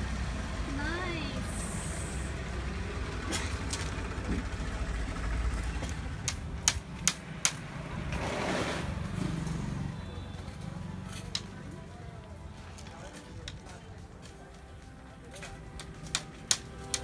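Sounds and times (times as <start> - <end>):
sharp clicks: 15.8 - 17.0.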